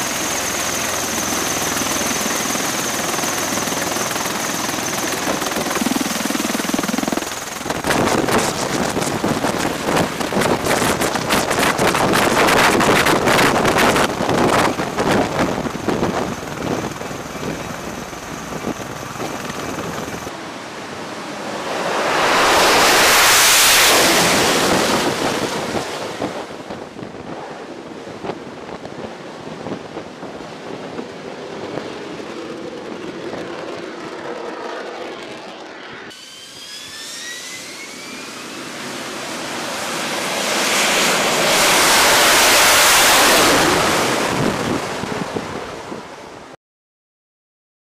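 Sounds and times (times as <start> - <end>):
jet engine roar: 0.0 - 46.5
tiltrotor aircraft noise: 0.0 - 46.6
rising engine whine: 15.2 - 26.3, 30.8 - 44.4.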